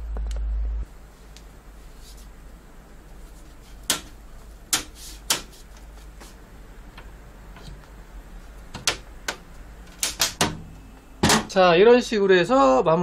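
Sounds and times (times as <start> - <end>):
plastic panel snapping into clips: 8.8 - 10.6.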